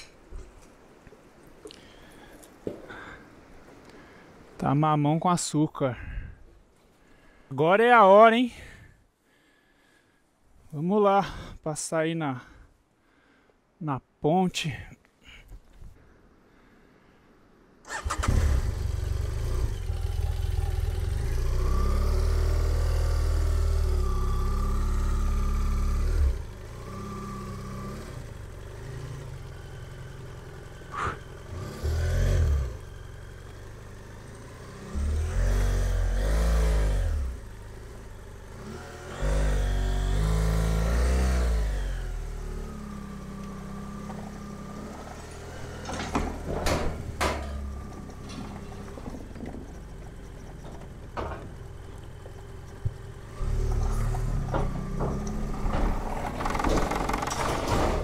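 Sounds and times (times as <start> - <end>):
motorcycle engine revving: 17.9 - 58.0
tyres knocking over planks: 44.0 - 58.0.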